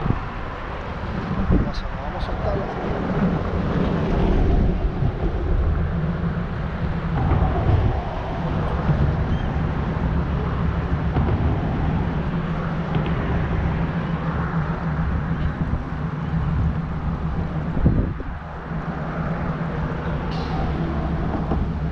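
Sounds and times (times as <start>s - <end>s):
vehicle engines rumbling: 0.0s - 21.9s.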